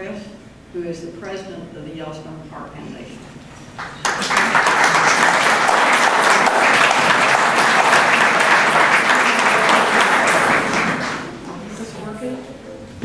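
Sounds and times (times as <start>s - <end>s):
audience applauding: 3.8s - 11.5s.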